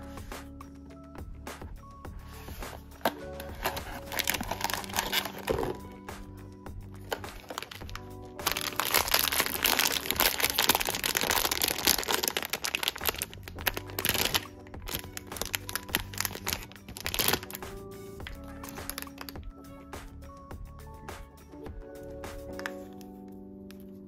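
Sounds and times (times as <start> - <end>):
soft background music: 0.0 - 24.0
foil pouch crinkling: 3.0 - 5.8, 7.0 - 17.6, 18.6 - 19.4.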